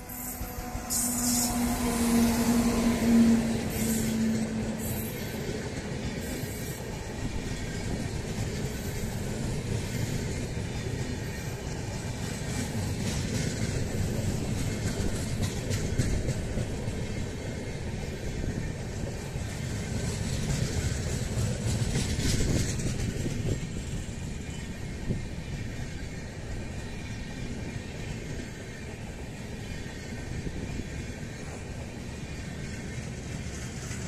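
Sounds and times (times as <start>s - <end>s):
train wheels rumbling on rails: 0.0s - 34.0s.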